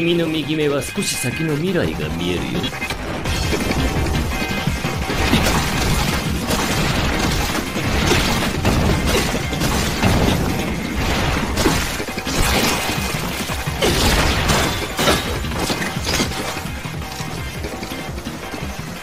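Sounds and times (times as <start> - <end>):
dramatic music score: 0.0 - 19.0
splatter: 5.2 - 16.7.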